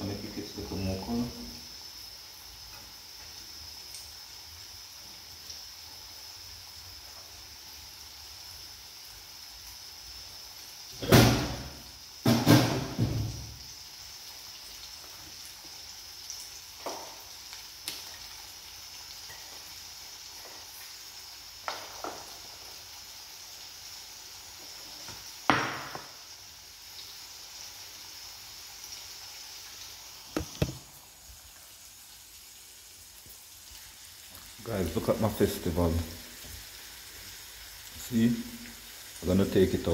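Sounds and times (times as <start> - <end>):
hot oil sizzling in a pan: 0.0 - 39.9
sharp pops: 30.3 - 30.9.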